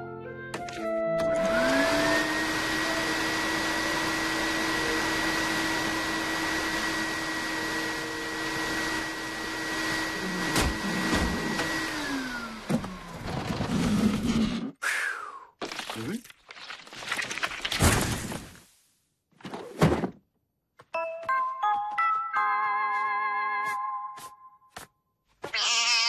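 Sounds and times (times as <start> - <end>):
cartoon vacuum cleaner whine: 1.2 - 14.3.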